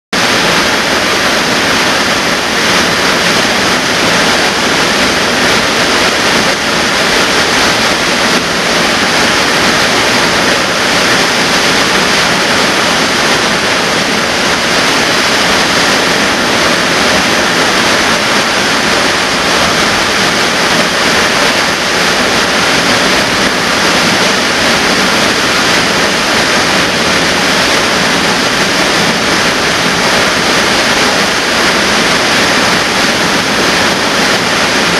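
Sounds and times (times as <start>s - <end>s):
waterfall rushing: 0.2s - 34.9s.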